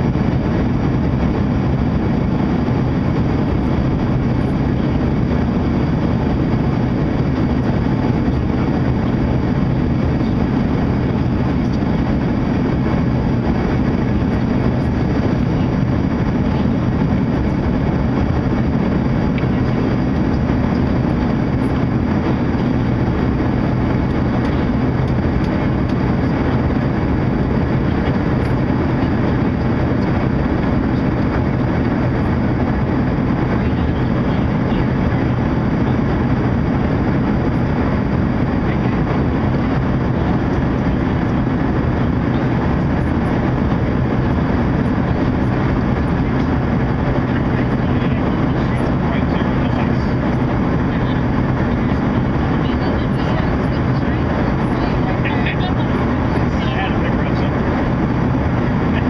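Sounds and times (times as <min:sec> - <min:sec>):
airflow over fuselage: 0:00.0 - 0:59.0
jet engines droning in cabin: 0:00.0 - 0:59.0.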